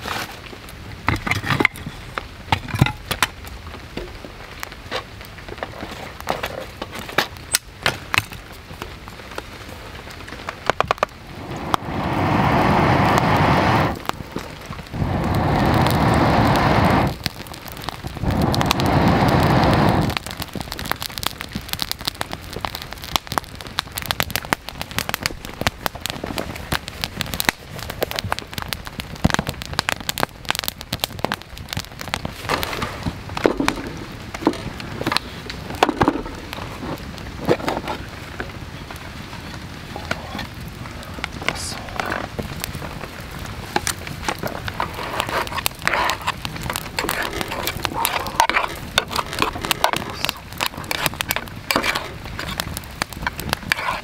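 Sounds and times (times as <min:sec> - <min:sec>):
campfire crackling and popping: 0:00.0 - 0:54.0
rain: 0:00.0 - 0:54.0
air blown through pipe: 0:11.2 - 0:14.0, 0:14.9 - 0:17.2, 0:18.2 - 0:20.2.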